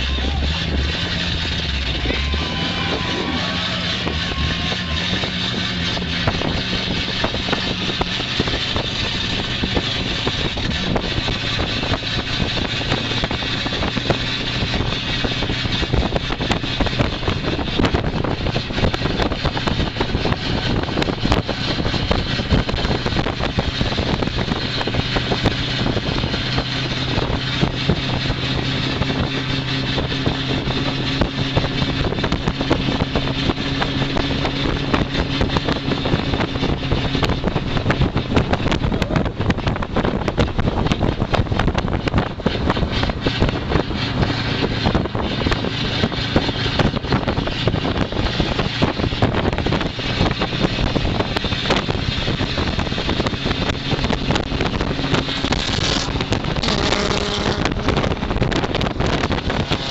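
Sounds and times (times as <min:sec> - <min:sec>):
car engine revving: 0:00.0 - 0:59.9
wind and road noise: 0:00.0 - 0:59.9.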